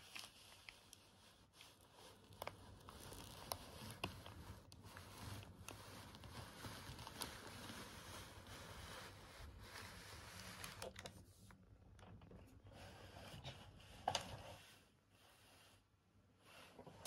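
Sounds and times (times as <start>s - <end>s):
paper wrapper crinkling: 0.0s - 1.1s, 1.7s - 8.5s, 9.6s - 11.2s.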